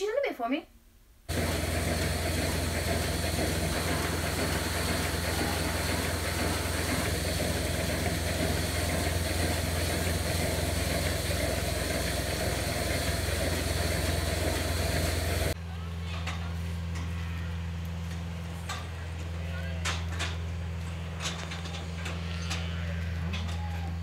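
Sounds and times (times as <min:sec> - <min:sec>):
machinery humming: 0:01.3 - 0:15.6.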